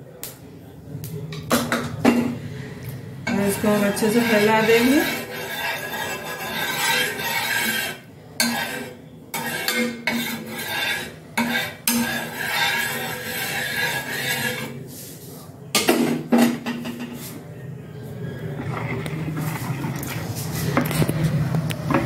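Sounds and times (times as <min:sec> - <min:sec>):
metal spatula scraping griddle: 0:03.3 - 0:15.4.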